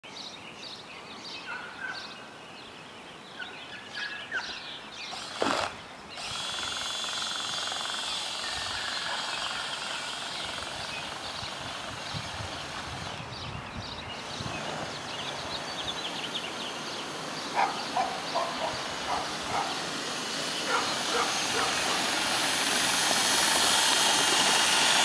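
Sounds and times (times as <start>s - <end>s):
birds chirping: 0.1s - 22.7s
electric motor whining: 5.1s - 13.4s, 14.2s - 18.0s, 18.8s - 25.0s
outdoor hiss: 14.5s - 25.0s.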